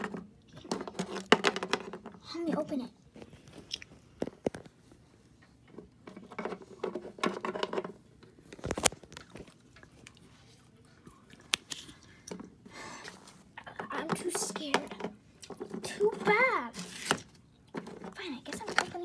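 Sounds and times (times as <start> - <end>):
toy figures and box handling: 13.2 - 19.0.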